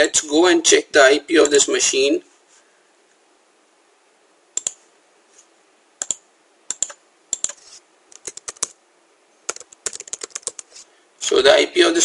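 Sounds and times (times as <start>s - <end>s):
keyboard keystrokes: 6.0s - 8.7s, 9.5s - 10.7s.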